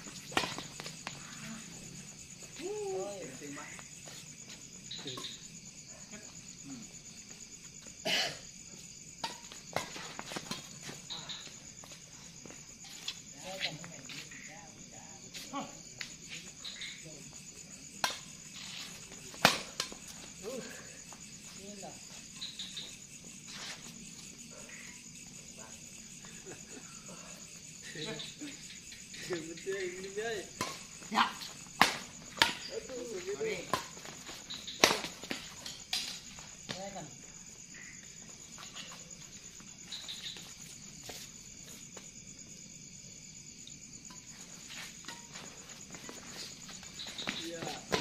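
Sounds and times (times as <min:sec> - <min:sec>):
crickets trilling: 0:00.0 - 0:48.0
night insects chirring: 0:00.0 - 0:48.0
badminton rackets hitting shuttlecock: 0:19.3 - 0:20.1, 0:30.5 - 0:33.0, 0:33.7 - 0:36.2.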